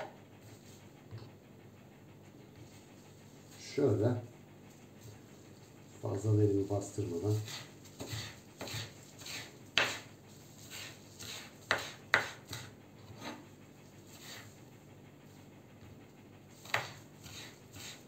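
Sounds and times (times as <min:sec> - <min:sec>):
knife chopping on wooden board: 0:07.4 - 0:10.1, 0:10.7 - 0:13.4, 0:16.6 - 0:18.0.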